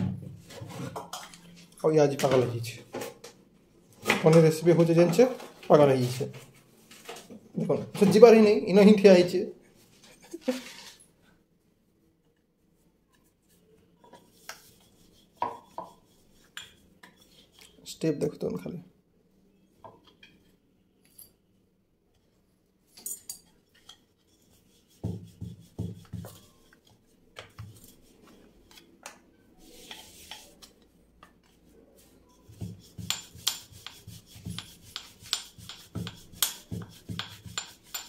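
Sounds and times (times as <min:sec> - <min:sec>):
rolling pin on dough: 0:13.5 - 0:17.7, 0:23.7 - 0:28.9, 0:29.7 - 0:38.0.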